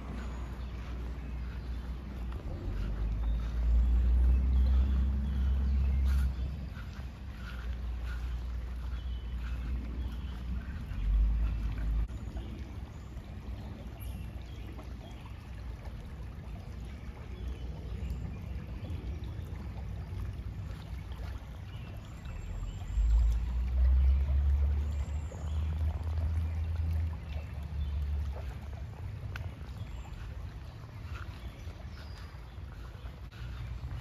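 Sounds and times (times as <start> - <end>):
wind buffeting microphone: 0.0 - 21.3
river water trickling: 0.0 - 34.0.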